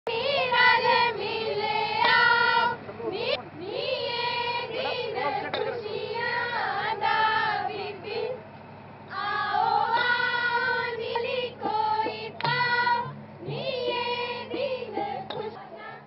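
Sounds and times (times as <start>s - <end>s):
girls singing in high voices: 9.1s - 16.0s.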